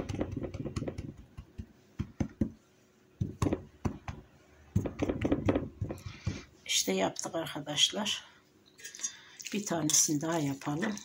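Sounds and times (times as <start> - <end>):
hands tapping dough: 0.0 - 2.6, 3.2 - 6.5.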